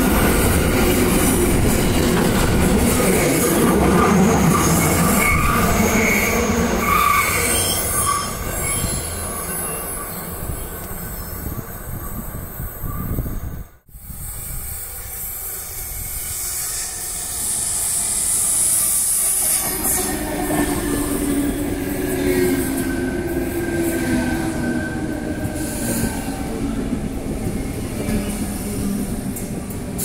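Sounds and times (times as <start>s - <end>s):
train wheels rumbling: 0.0s - 30.0s
wheel squeal: 4.5s - 10.4s.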